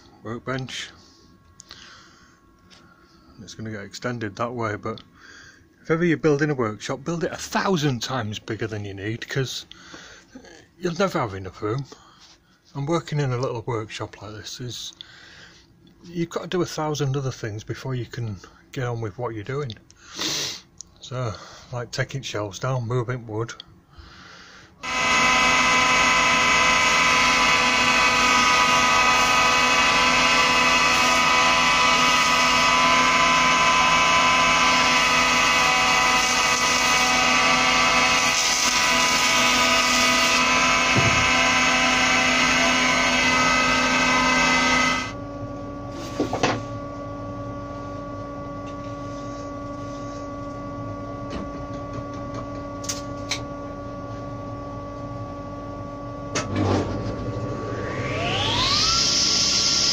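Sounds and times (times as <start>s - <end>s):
quiet machine hum: 0.0s - 59.9s
planer planing wood: 24.8s - 45.2s, 45.8s - 52.8s, 55.9s - 59.9s.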